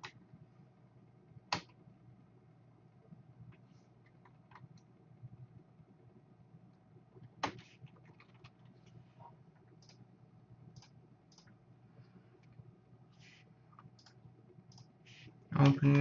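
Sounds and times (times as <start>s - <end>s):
low steady hum: 0.0s - 16.0s
computer mouse clicks: 1.5s - 1.8s, 9.6s - 10.0s, 10.7s - 11.6s, 13.8s - 14.9s.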